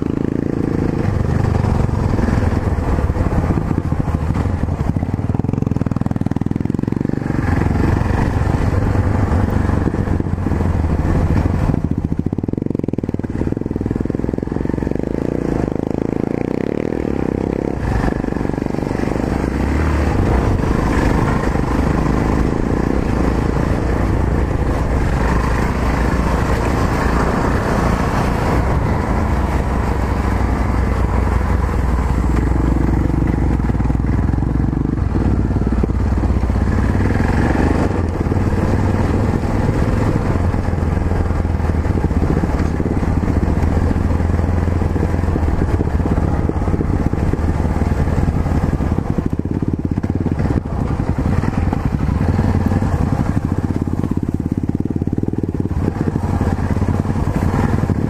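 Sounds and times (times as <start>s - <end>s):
motorcycle engine revving: 0.0s - 58.0s
riding noise: 0.0s - 58.0s.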